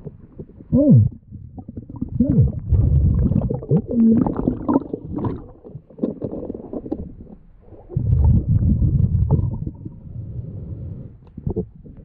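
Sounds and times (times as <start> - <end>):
gurgle of exhaled bubbles: 0.0 - 12.0.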